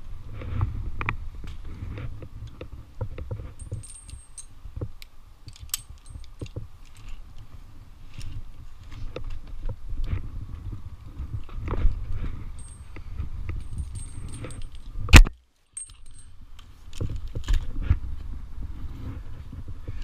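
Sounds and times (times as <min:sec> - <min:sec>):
climbing hardware clinking: 0:03.4 - 0:04.6, 0:05.5 - 0:07.3, 0:12.5 - 0:15.0, 0:15.7 - 0:17.6.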